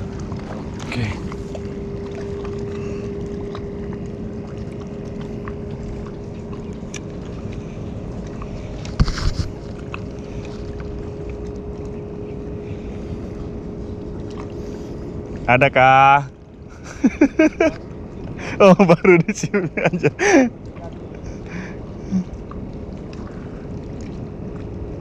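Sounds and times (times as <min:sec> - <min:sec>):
low hum: 0:00.0 - 0:25.0
wind on microphone: 0:05.8 - 0:10.8.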